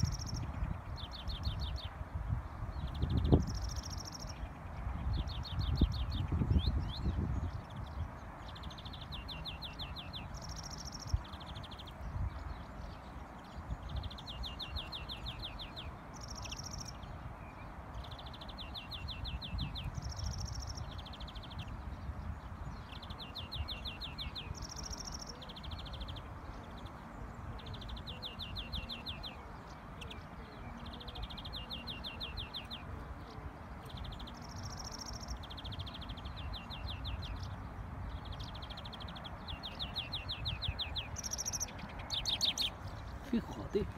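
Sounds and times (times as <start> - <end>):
finch singing rattling trills: 0.0 - 43.9.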